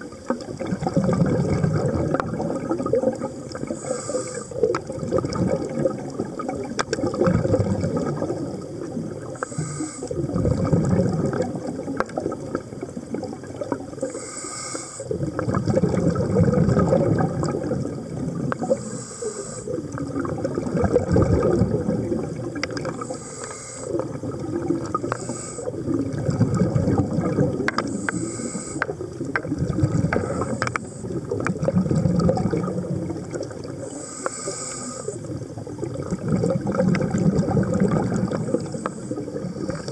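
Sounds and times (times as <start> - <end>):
bubbling exhalations underwater: 0.0 - 9.5, 10.1 - 14.1, 15.0 - 18.9, 19.6 - 23.2, 23.8 - 34.1, 34.8 - 39.9
hissing regulator inhalations: 3.6 - 4.7, 9.4 - 10.3, 14.0 - 15.2, 18.6 - 19.9, 23.0 - 24.1, 24.9 - 25.9, 27.8 - 29.1, 30.0 - 31.4, 33.8 - 35.4, 38.4 - 39.9
faint clicks: 18.5 - 20.0, 24.8 - 25.3, 27.6 - 31.6.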